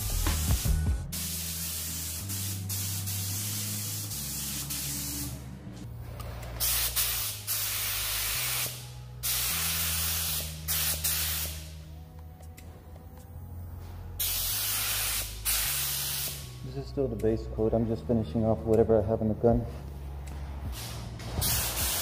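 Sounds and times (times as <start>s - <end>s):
paint spray gun hissing: 0.1s - 5.4s, 6.6s - 11.7s, 14.2s - 16.5s, 20.7s - 22.0s.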